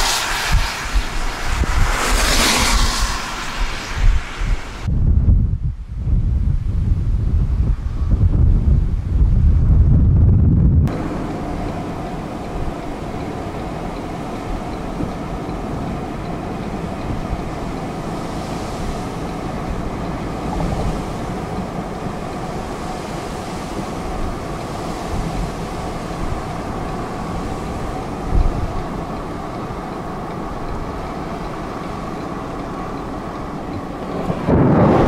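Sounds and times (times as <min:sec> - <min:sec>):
road and tyre noise: 0:00.0 - 0:35.0
car engine hum: 0:10.9 - 0:35.0.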